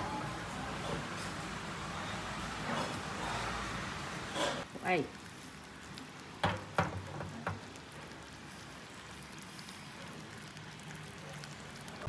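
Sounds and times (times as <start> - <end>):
syrup boiling and bubbles popping: 4.6 - 12.0.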